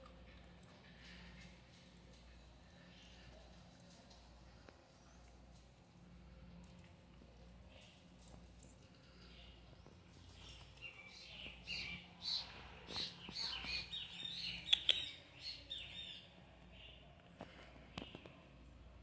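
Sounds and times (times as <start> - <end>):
bird chirping: 9.1 - 17.0.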